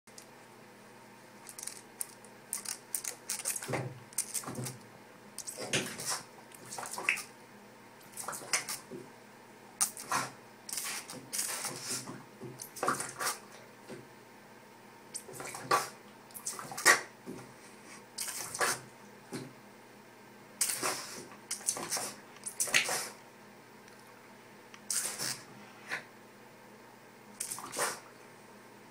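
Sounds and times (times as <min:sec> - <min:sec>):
squirt bottle spraying: 0:24.9 - 0:25.4.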